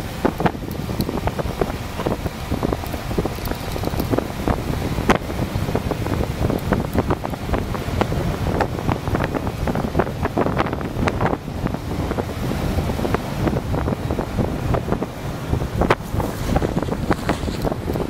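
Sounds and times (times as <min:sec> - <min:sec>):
wind buffeting microphone: 0:00.0 - 0:18.0
small knocks and rattles: 0:02.8 - 0:04.2.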